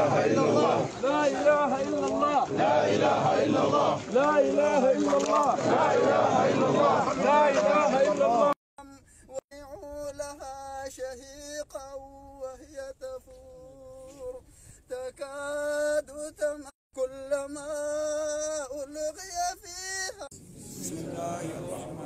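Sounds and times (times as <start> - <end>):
several voices: 0.0 - 8.6.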